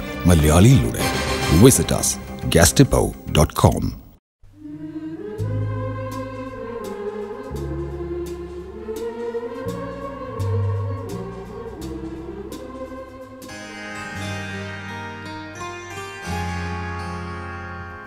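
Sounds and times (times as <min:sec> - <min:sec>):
organ-like chords: 0:13.5 - 0:18.0.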